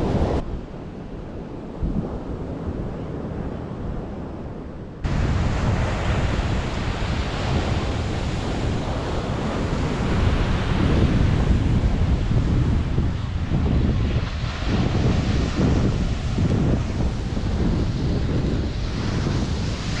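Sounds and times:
wind on microphone: 0:00.0 - 0:20.0
surf breaking on beach: 0:05.0 - 0:20.0.

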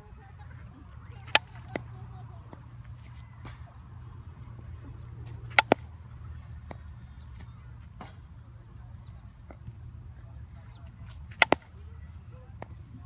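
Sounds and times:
bat hitting softball: 0:00.8 - 0:02.7, 0:05.3 - 0:06.9, 0:11.0 - 0:11.9.

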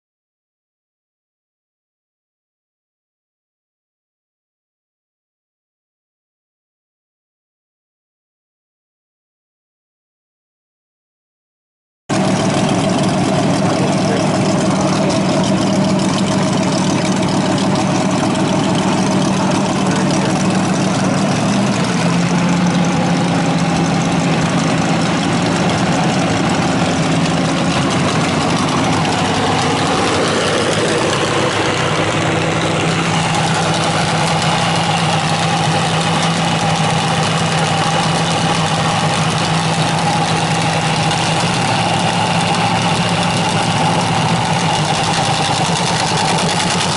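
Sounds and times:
dragster engine idling: 0:12.1 - 0:46.9.

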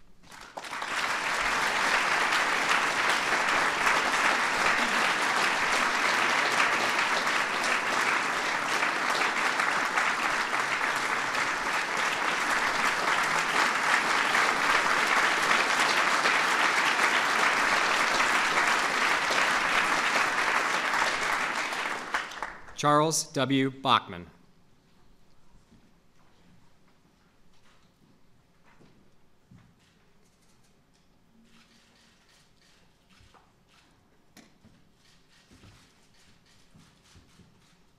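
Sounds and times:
audience applauding: 0:00.2 - 0:22.9.

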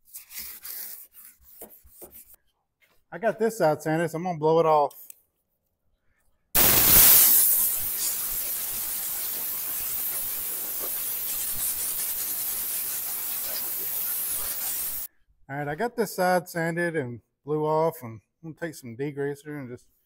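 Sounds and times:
compressed air blow gun hissing: 0:06.6 - 0:15.1.

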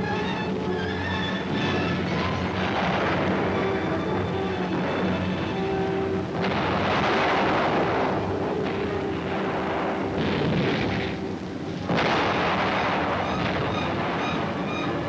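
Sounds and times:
steady drone: 0:00.0 - 0:15.0
explosions rumbling: 0:01.4 - 0:15.0
sharp blast: 0:06.3 - 0:15.0.

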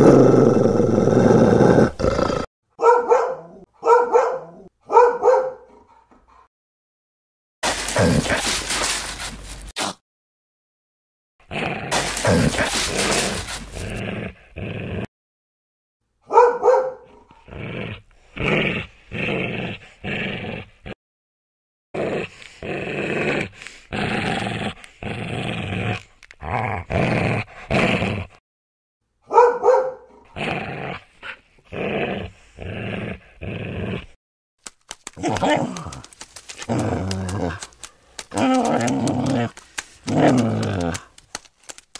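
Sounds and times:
dog growling: 0:00.0 - 0:02.5, 0:11.5 - 0:15.1, 0:22.0 - 0:28.4, 0:30.1 - 0:34.2, 0:35.2 - 0:41.2.

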